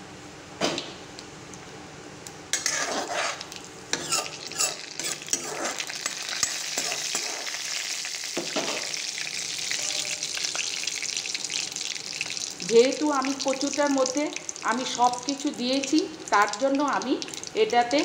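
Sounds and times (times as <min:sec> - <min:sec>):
spices sizzling in hot oil: 0:02.5 - 0:18.0
scraping stirs: 0:02.6 - 0:07.4.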